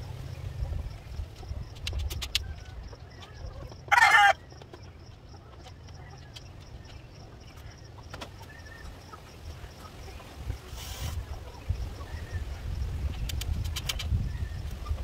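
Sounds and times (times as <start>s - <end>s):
low background rumble: 0.0s - 15.0s
chicken harsh call: 3.9s - 4.4s.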